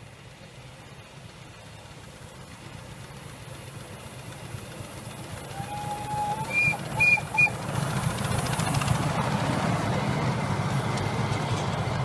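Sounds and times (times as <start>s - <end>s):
train rumbling: 0.0s - 12.0s
train whistle toots: 5.5s - 7.6s.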